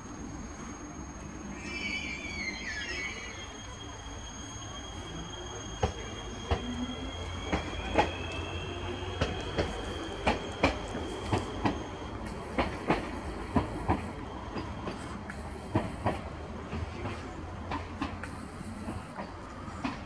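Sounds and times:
train wheels clicking over rail joints: 0:05.8 - 0:20.0.

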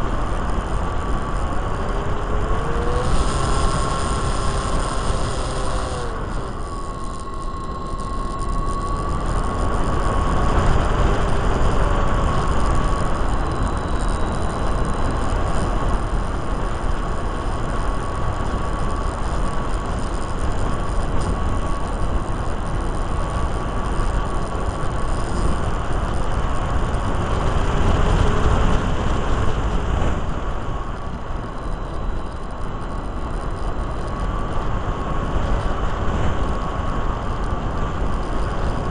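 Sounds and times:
wind rushing over microphone: 0:00.0 - 0:38.9
model plane motor whining: 0:00.1 - 0:29.6.

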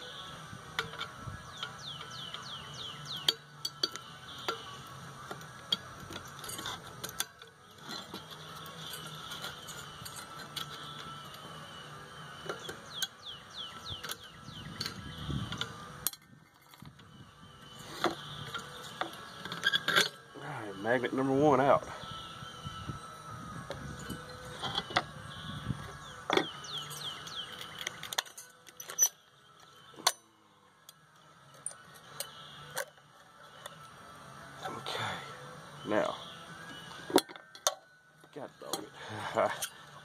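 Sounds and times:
screwdriver scraping metal: 0:03.2 - 0:11.4, 0:17.9 - 0:20.2, 0:26.3 - 0:30.2.

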